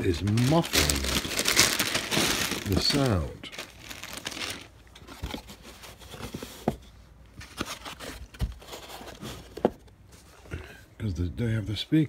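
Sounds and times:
packing insert rustling: 0.0 - 6.8, 7.4 - 9.8.

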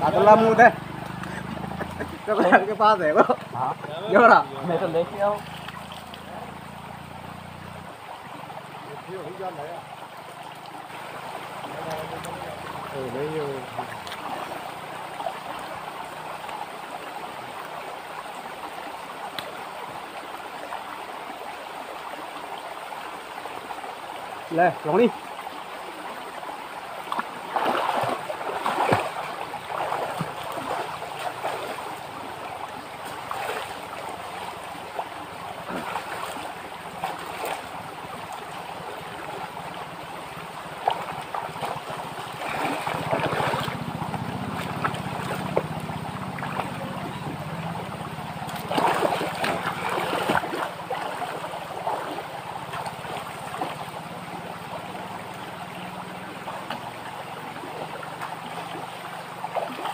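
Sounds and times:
stream water flowing: 0.0 - 59.9
man splashing in water: 27.2 - 37.8, 40.5 - 54.0.

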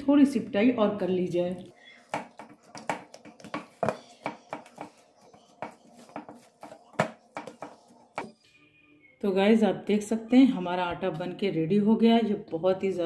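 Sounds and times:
hands kneading dough: 1.7 - 8.3.

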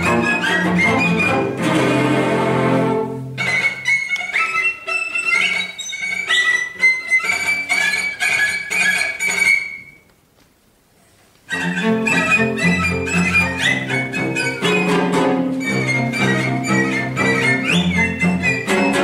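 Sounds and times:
cello ensemble playing: 0.0 - 5.7, 11.5 - 19.0.

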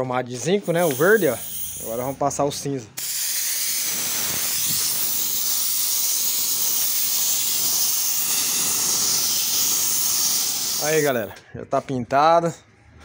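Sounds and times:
paint spray gun hissing: 0.6 - 2.2, 3.0 - 11.3.

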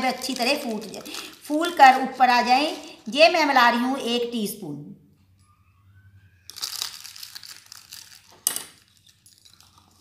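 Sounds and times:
paper packet crinkling: 0.0 - 3.2, 6.5 - 10.0.

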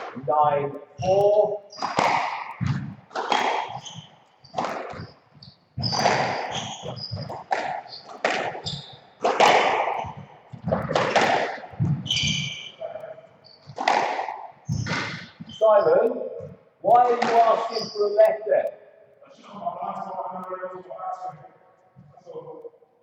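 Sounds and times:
shoes squeaking on wooden floor: 0.0 - 18.3
squash ball cracks: 1.2 - 4.0, 6.0 - 12.8, 13.7 - 15.4.

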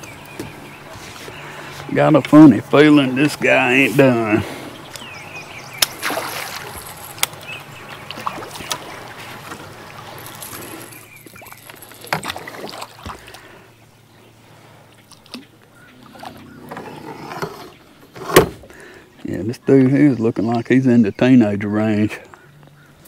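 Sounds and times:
water sloshing against boat hull: 4.1 - 13.6.

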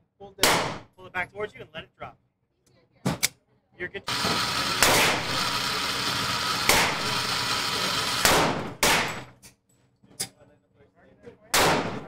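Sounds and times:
gunshots echoing indoors: 8.2 - 9.3, 11.5 - 12.0.

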